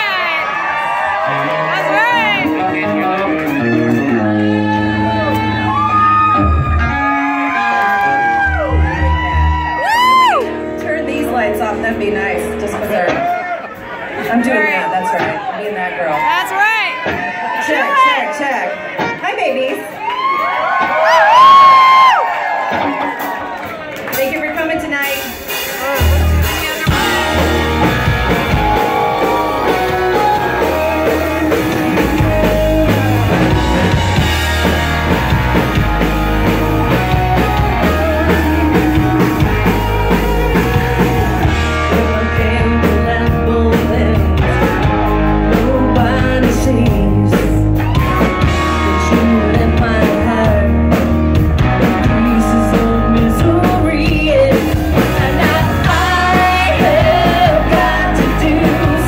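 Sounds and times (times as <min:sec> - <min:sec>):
rock band playing: 0:00.0 - 0:59.0
woman singing: 0:41.8 - 0:47.6, 0:48.7 - 0:51.1, 0:51.8 - 0:59.0.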